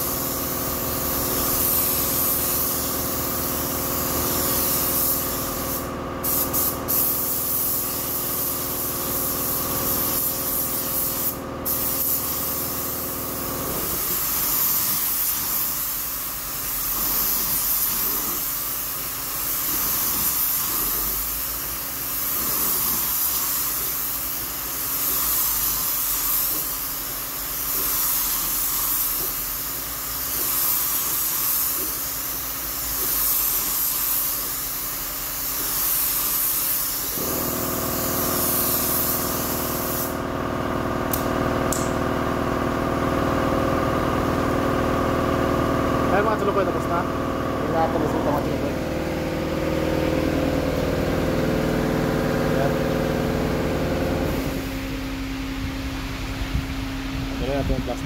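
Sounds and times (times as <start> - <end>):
spray gun hissing: 0.0 - 40.3
machine hum: 40.2 - 57.3.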